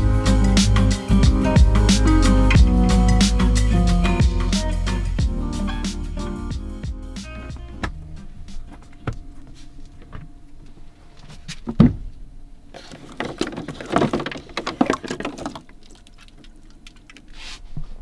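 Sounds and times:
faint steady hum: 0.0 - 18.0
rustling and clattering: 8.2 - 18.0.

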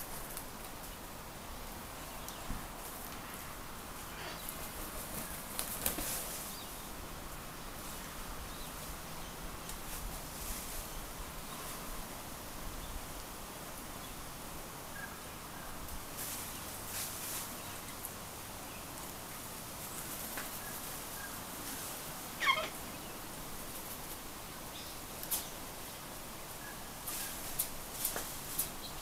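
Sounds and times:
cockatoo call: 22.3 - 23.0.

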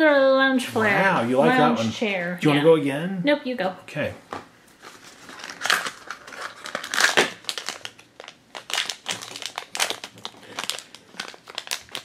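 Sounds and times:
foil pouch crinkling: 4.8 - 12.0.

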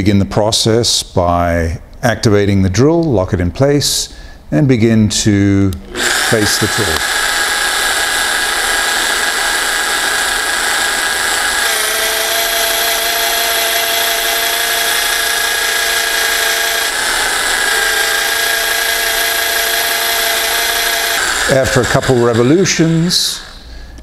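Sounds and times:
electric drill whining: 5.8 - 23.6.

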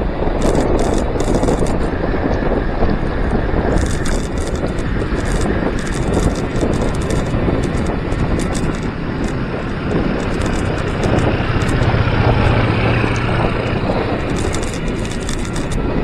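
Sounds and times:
wind buffeting microphone: 0.0 - 16.0
motorcycle engine droning: 0.1 - 16.0.

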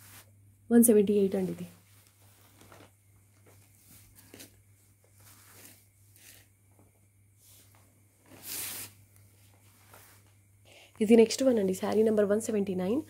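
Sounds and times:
fabric rustling: 0.0 - 0.3, 1.2 - 10.5
low steady hum: 0.0 - 13.0.

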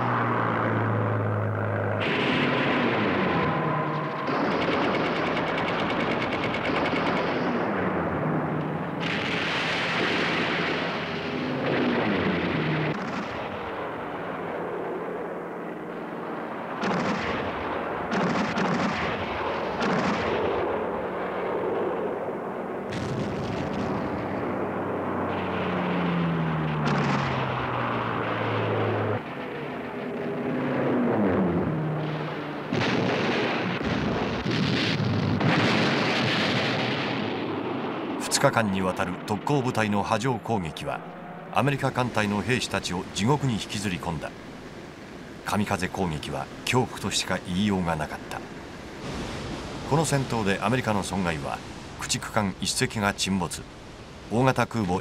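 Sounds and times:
aircraft engines droning: 0.0 - 32.8, 37.2 - 55.0
anti-aircraft guns firing: 0.1 - 40.2.

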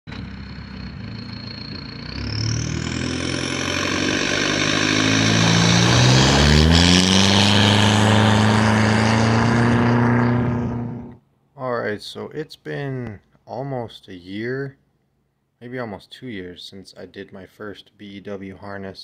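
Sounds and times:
truck engine revving: 0.0 - 11.2
high whistle rising in pitch: 0.1 - 11.2.

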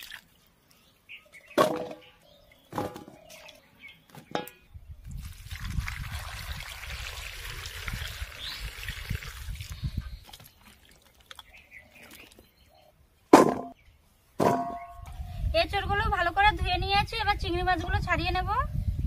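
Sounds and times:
water pouring into bowl: 5.1 - 11.5
water sloshing: 9.2 - 12.5.

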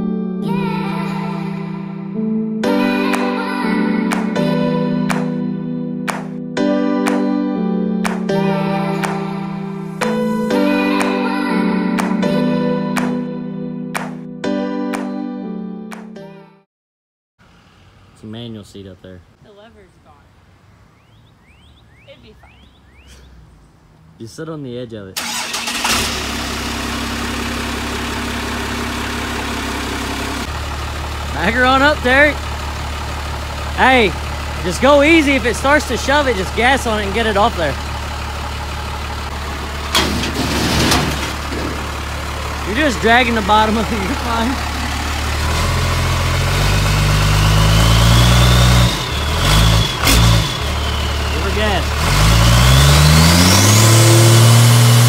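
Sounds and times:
pickup engine starting and idling: 25.2 - 55.0.

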